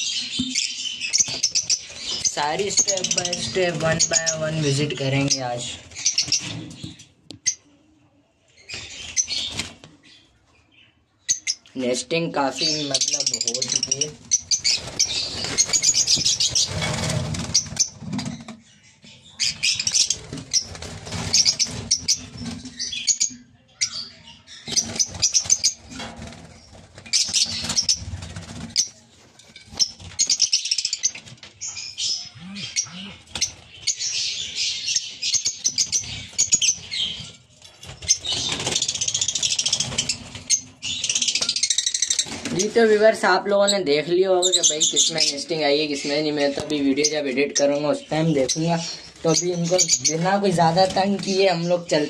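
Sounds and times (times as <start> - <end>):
lovebirds chattering and squeaking: 0.0 - 52.0
wing flutters: 13.7 - 18.6.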